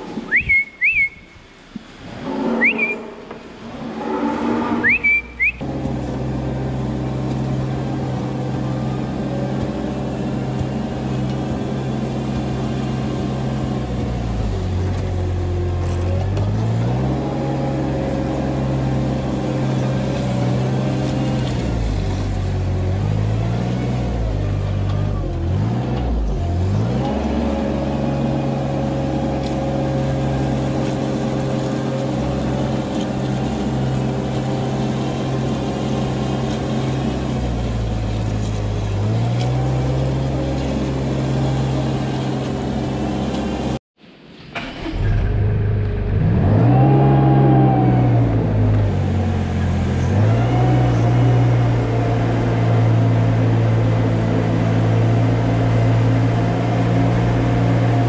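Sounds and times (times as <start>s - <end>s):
short high chirps: 2.6s - 3.1s, 4.8s - 5.6s.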